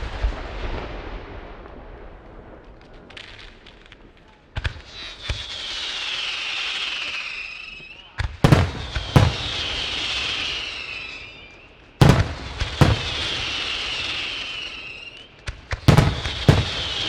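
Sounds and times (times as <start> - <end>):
firework shells bursting: 2.6 - 17.0
firework stars hissing: 4.6 - 17.0.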